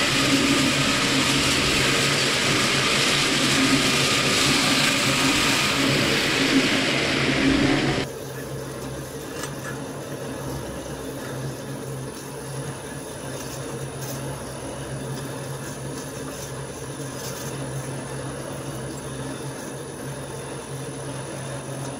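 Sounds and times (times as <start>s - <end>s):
shredder running empty hum: 0.0s - 8.1s.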